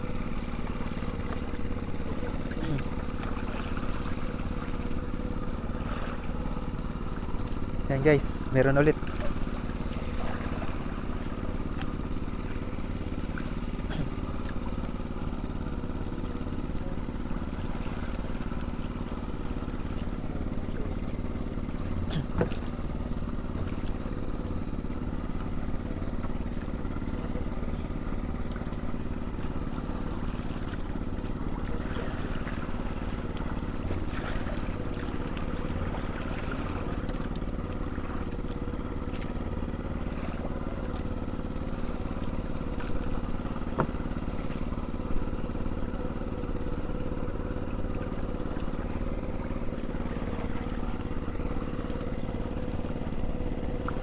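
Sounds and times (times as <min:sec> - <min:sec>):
small boat engine running: 0:00.0 - 0:54.0.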